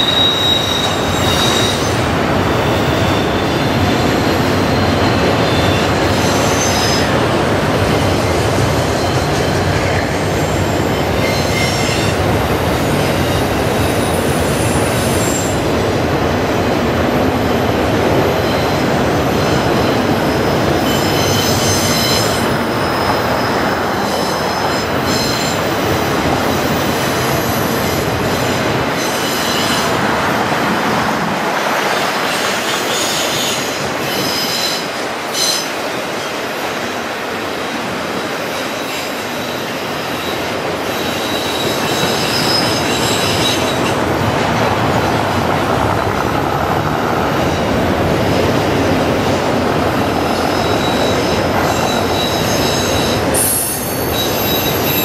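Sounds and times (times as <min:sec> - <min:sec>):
high-pitched wheel squeal: 0:00.0 - 0:03.9, 0:19.4 - 0:25.9, 0:38.8 - 0:44.0, 0:50.2 - 0:55.0
train wheels rumbling on rail: 0:00.0 - 0:55.0.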